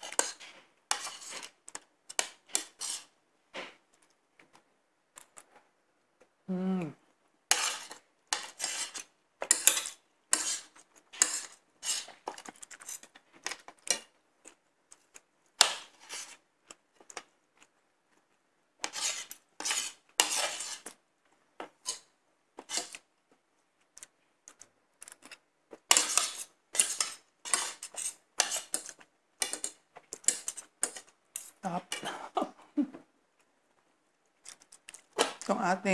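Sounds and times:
cutlery scraping and clinking on plate: 0:00.0 - 0:03.1, 0:07.5 - 0:14.1, 0:15.6 - 0:16.4, 0:18.8 - 0:21.0, 0:21.6 - 0:23.0, 0:25.0 - 0:32.1.

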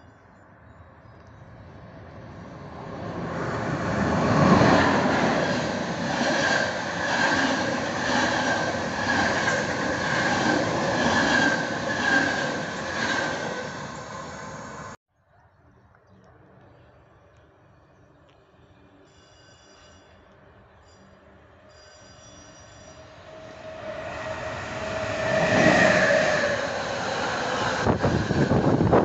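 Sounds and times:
train passing at speed: 0:01.3 - 0:15.0, 0:22.6 - 0:29.0
high ringing of wheels on rails: 0:18.9 - 0:29.0.

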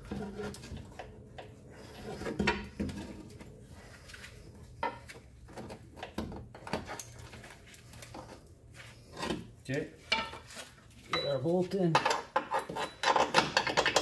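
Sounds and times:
metal clinks and knocks: 0:11.1 - 0:14.0.

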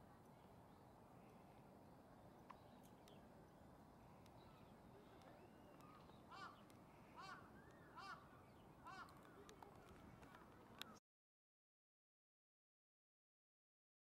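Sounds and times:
crow cawing: 0:06.3 - 0:06.6, 0:07.2 - 0:08.2, 0:08.8 - 0:09.2.

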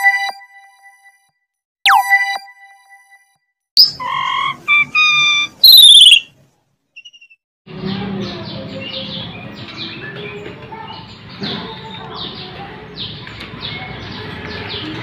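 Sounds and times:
songbirds chirping: 0:07.0 - 0:15.0.

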